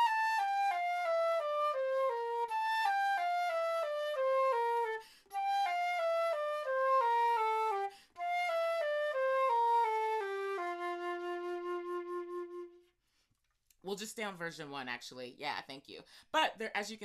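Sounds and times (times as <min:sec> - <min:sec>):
flute playing slow scales: 0:00.0 - 0:13.0
flutist breathing: 0:04.9 - 0:05.4, 0:07.8 - 0:08.2, 0:12.8 - 0:13.4.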